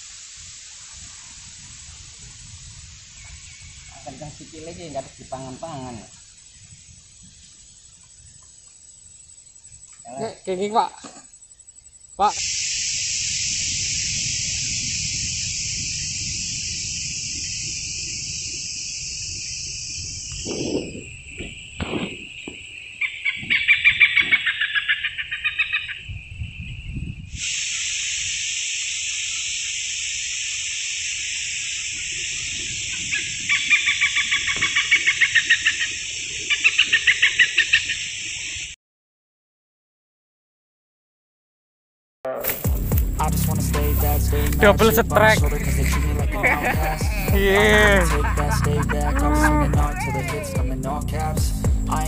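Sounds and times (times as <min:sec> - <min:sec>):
bird calling in rapid notes: 0:22.9 - 0:26.0, 0:32.3 - 0:38.2, 0:43.9 - 0:51.3
shrill high drone: 0:42.5 - 0:52.0.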